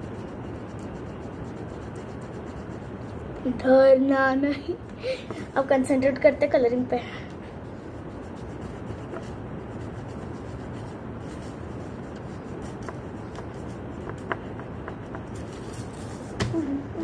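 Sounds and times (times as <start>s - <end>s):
crayon scratching on paper: 0.0s - 3.6s, 7.6s - 16.5s.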